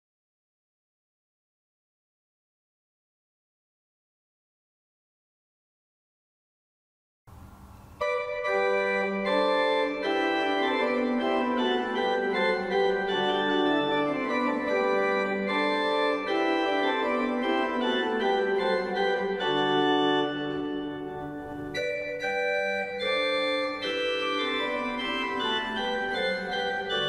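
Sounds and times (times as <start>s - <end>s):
faint hiss: 7.3s - 8.8s
pipe organ playing: 7.8s - 27.0s.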